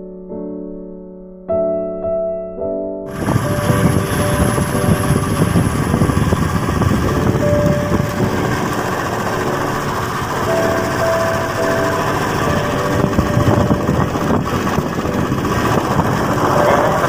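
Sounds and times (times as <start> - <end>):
motorcycle engine low rumble: 3.1 - 17.0.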